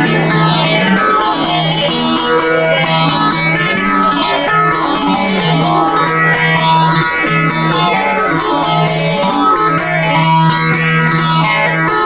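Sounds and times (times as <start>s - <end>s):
amplified plucked lute: 0.0s - 12.0s.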